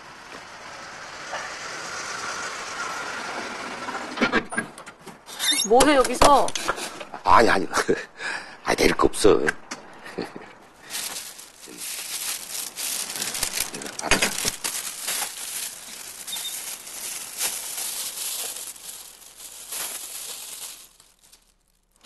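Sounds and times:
plastic bag rustling and crinkling: 10.8s - 22.0s.

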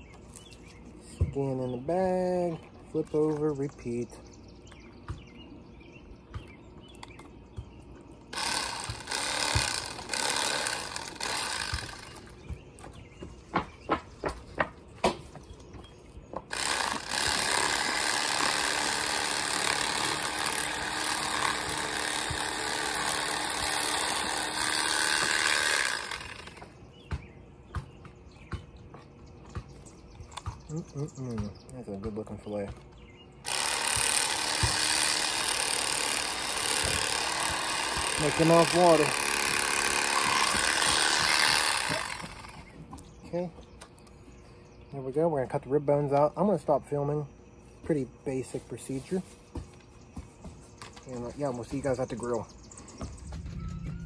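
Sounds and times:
electric fillet knife cutting fish: 8.4s - 12.2s, 16.5s - 26.7s, 33.5s - 42.6s.

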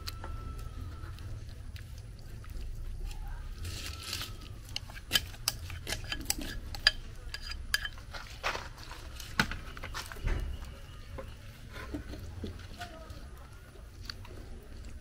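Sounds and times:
utensils clinking against dishes: 3.8s - 8.3s.

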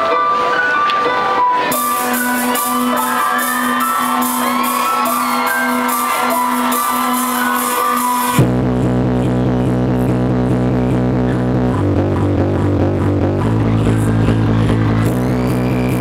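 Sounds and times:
crowd shouting and whooping: 0.0s - 8.4s, 13.4s - 16.0s
electronic beat with pulsing bass: 1.7s - 16.0s.

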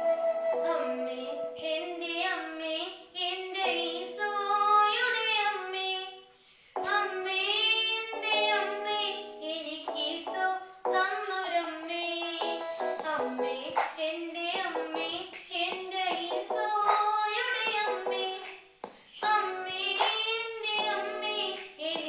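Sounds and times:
boy singing devotional song: 0.5s - 22.0s
instrumental backing track: 12.2s - 13.9s.

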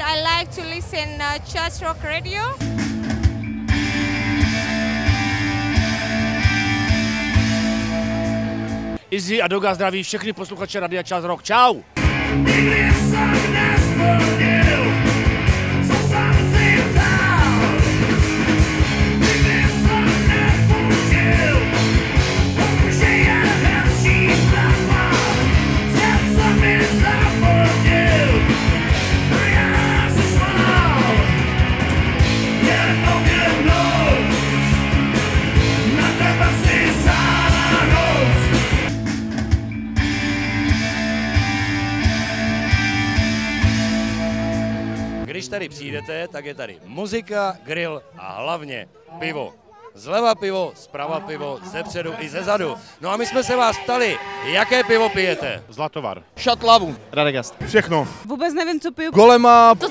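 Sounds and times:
rock song with heavy drums: 2.6s - 9.0s, 12.0s - 45.3s.

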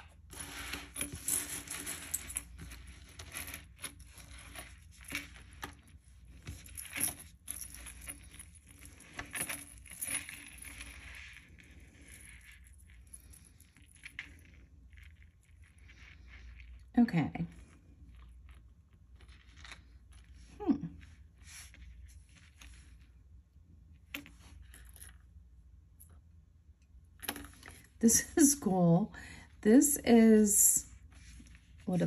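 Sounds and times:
beads and chain clinking: 0.0s - 23.0s, 24.1s - 26.2s.

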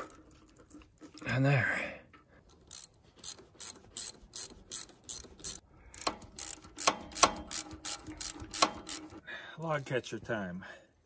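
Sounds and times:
socket ratchet clicking: 2.6s - 9.2s.

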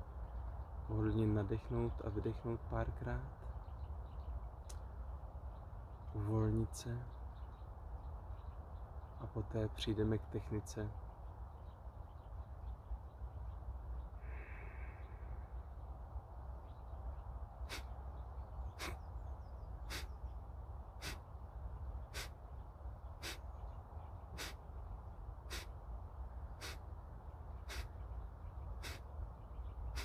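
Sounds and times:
forceful exhalations through nose: 17.7s - 17.9s, 18.8s - 19.0s, 19.9s - 20.1s, 21.0s - 21.2s, 22.1s - 22.3s, 23.2s - 23.4s, 24.4s - 24.6s, 25.5s - 25.7s, 26.6s - 26.8s, 27.7s - 27.9s, 28.8s - 29.0s.

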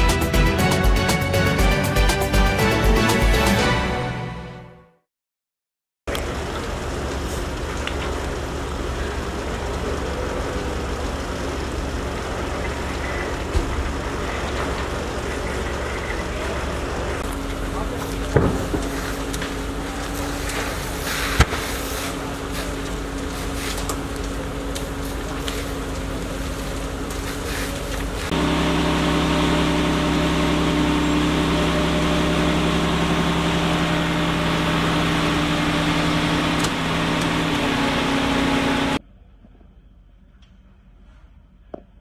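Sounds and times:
deep engine drone: 0.0s - 3.8s, 6.1s - 41.8s
fire cracking and snapping: 6.1s - 32.8s
fire engine motors and pumps humming: 6.1s - 40.6s.

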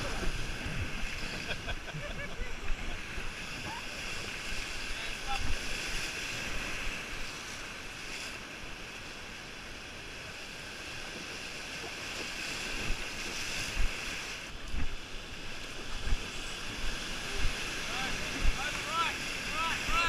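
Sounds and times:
raft thumping on waves: 0.0s - 20.0s
whitewater rapids rushing: 15.4s - 20.0s.

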